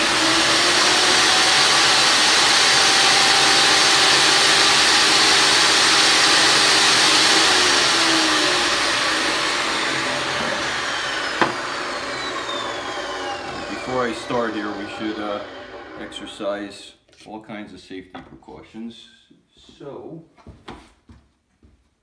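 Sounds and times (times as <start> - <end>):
table saw whining: 0.0 - 16.5.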